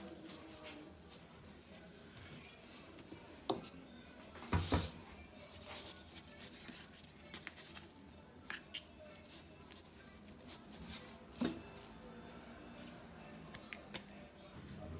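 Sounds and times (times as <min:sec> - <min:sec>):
hands rubbing dough: 0:05.4 - 0:11.2.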